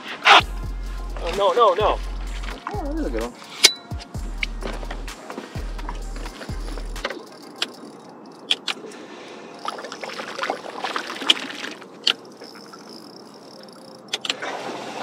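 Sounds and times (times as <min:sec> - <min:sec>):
wind: 0:00.0 - 0:15.0
water washing: 0:04.4 - 0:15.0.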